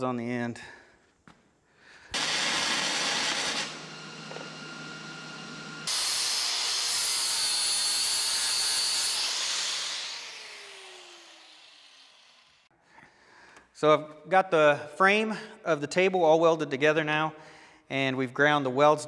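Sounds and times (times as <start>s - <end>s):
welding arc sizzling: 2.2s - 4.4s
angle grinder grinding steel: 2.2s - 12.7s.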